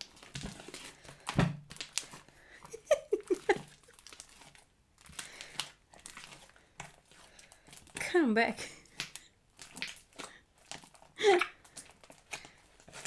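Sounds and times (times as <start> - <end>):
slime squelching: 0.0 - 13.0.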